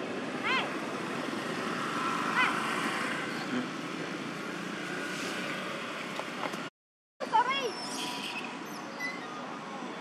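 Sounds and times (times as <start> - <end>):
distant road traffic: 0.0 - 10.0
short high squeak: 7.6 - 9.4.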